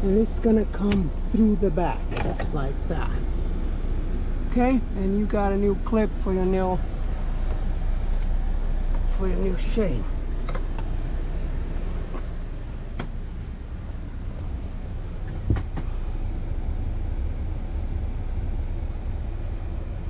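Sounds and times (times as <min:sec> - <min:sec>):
steady low rumble: 0:00.0 - 0:20.0.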